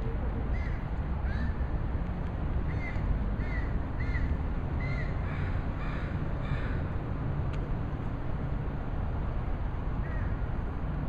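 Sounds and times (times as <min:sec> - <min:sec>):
low rumble of street noise: 0:00.0 - 0:11.0
crow cawing: 0:02.7 - 0:06.8.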